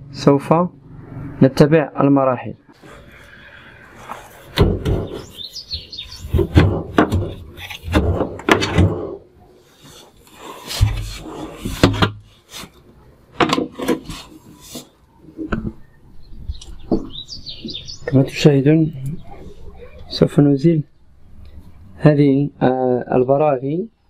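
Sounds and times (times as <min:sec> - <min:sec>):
heavy thuds: 0:04.5 - 0:09.2
metal panel scraping and rattling: 0:06.2 - 0:09.2, 0:09.9 - 0:12.7.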